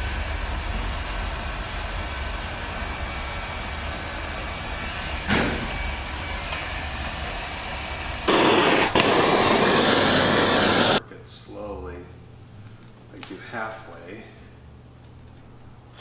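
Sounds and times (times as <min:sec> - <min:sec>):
heat gun fan humming: 0:08.3 - 0:11.0
loud rushing noise: 0:08.3 - 0:11.0.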